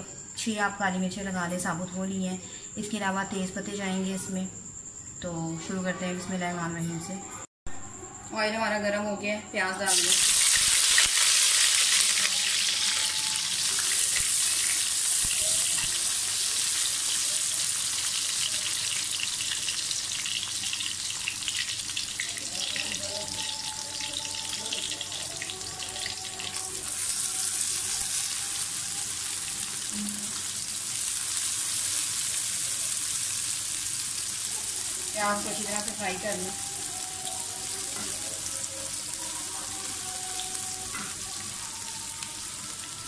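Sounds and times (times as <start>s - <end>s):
onions sizzling in hot oil: 9.8s - 43.0s.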